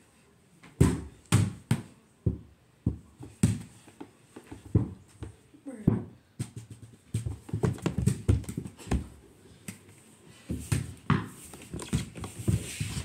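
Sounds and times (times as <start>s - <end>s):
small ball bouncing and hitting hoop: 0.8s - 3.7s, 5.9s - 9.0s.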